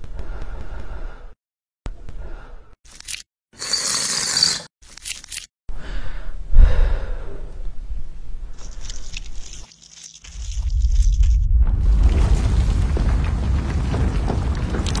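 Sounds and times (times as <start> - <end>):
low rumble: 10.4 - 15.0.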